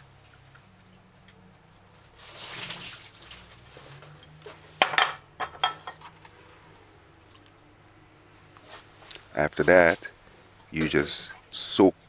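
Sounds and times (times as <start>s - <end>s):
glass and ceramic clinking: 4.2s - 6.0s.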